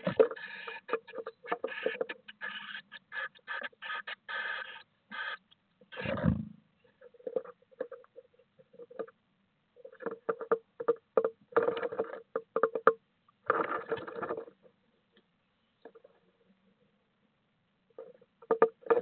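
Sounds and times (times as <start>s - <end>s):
claws scratching on wood: 0.0s - 6.1s.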